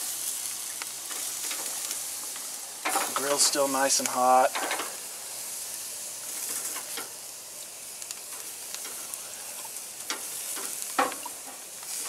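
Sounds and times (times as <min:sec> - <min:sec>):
ribs sizzling on grill: 0:00.0 - 0:12.0
crackles and pops: 0:00.4 - 0:03.4, 0:06.3 - 0:12.0.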